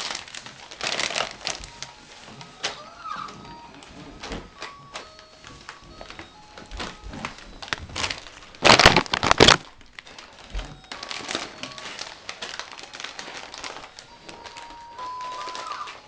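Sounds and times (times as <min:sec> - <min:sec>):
plastic snack bag crinkling: 0:00.0 - 0:16.0.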